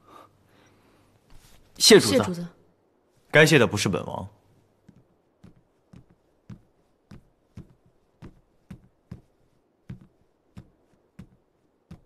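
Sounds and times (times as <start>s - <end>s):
footsteps on hard floor: 4.8s - 12.0s.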